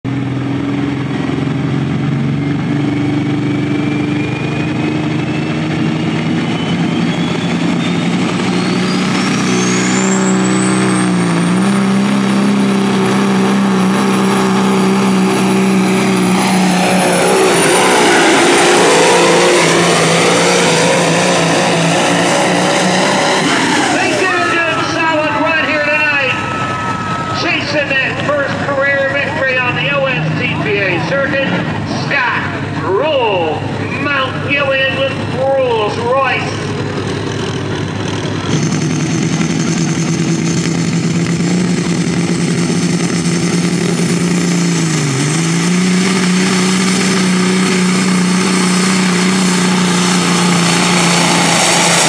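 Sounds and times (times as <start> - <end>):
diesel engine running hard: 0.0 - 52.0
high whistle rising in pitch: 2.4 - 11.3, 15.4 - 28.2.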